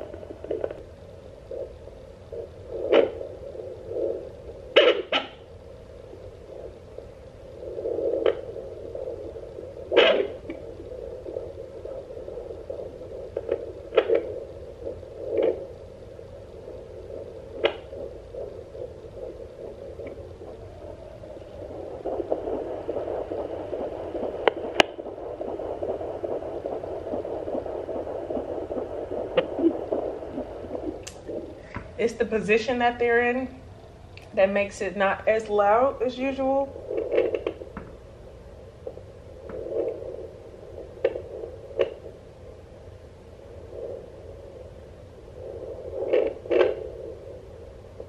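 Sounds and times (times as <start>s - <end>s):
probe scraping clicks: 0.0s - 0.8s, 9.8s - 15.7s, 17.2s - 20.6s, 21.4s - 32.9s, 35.3s - 38.0s
fluttering heartbeat whoosh: 7.6s - 32.8s.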